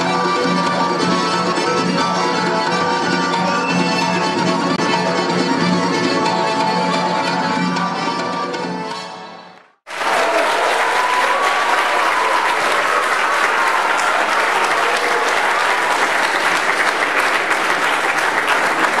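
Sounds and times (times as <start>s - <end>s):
audience applauding: 9.6s - 19.0s.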